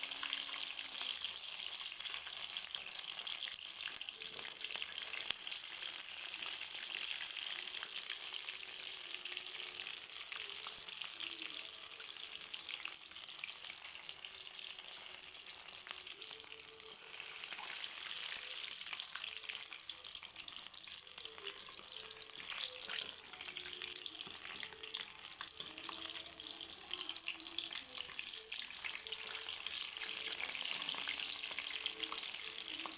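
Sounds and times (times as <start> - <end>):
chicken frying in hot oil: 0.0 - 32.9.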